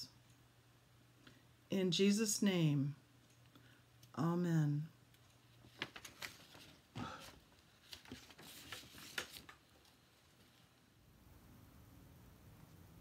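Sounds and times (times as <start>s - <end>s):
faint handling clicks and rustles: 5.1s - 10.8s.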